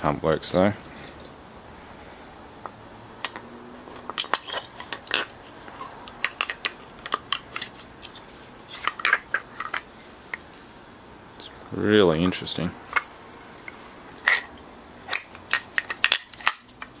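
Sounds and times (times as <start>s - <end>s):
metal parts clinking and knocking: 3.2s - 10.5s, 12.8s - 17.0s.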